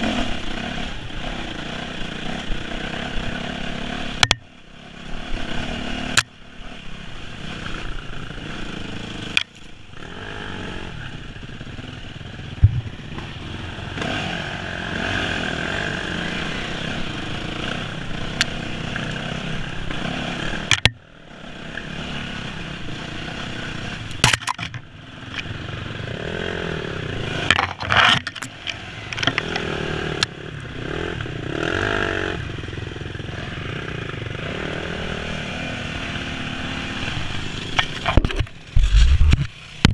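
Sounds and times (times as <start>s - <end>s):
dirt bike engine revving: 0.0s - 39.9s
sharp knocks: 12.6s - 13.3s.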